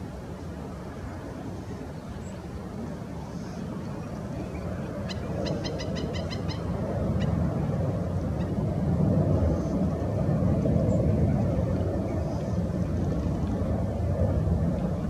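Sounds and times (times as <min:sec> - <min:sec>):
steady low rumble: 0:00.0 - 0:15.0
bird calling: 0:05.0 - 0:07.4.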